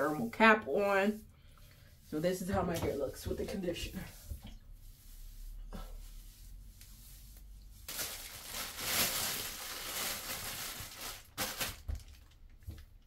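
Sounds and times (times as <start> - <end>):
plastic shower cap crinkling: 7.8 - 13.0.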